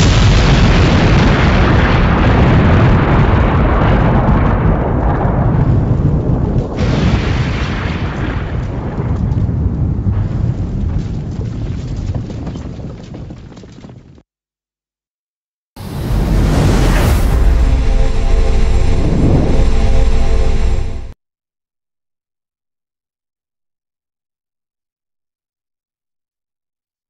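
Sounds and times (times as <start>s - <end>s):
loud deep rumble: 15.8s - 21.2s.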